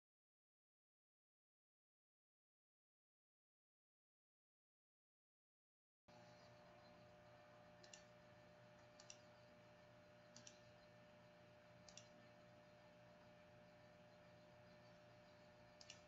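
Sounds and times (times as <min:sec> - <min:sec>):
low electrical hum: 0:06.1 - 0:16.0.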